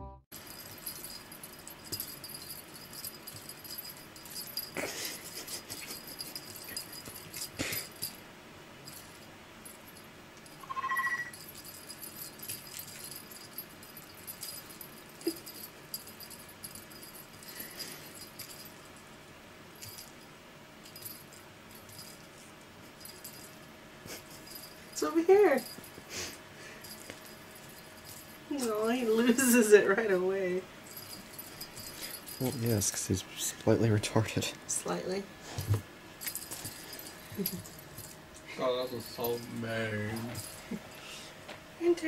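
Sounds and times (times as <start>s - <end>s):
cat toy jingling and rattling: 0.3s - 19.2s, 19.8s - 41.2s
short steady tone: 10.6s - 11.3s.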